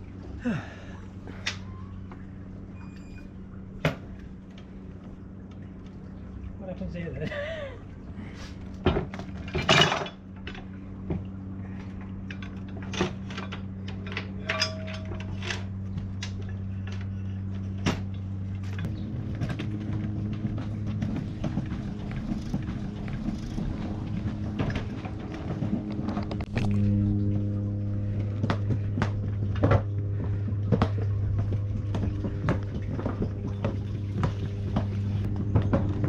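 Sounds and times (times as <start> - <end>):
steady low hum: 0.0 - 36.0
anchor chain clinking on metal: 12.2 - 15.9.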